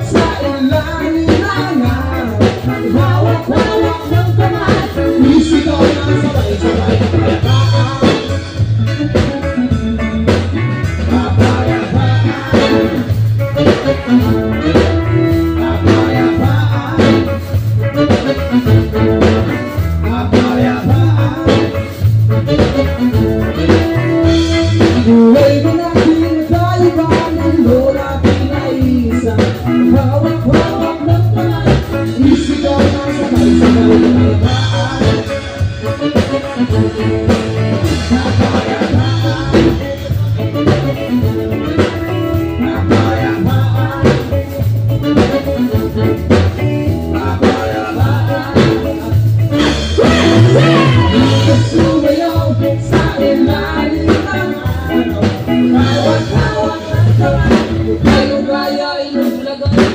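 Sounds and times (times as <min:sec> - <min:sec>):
live band playing: 0:00.0 - 0:59.9
person singing: 0:00.0 - 0:59.9.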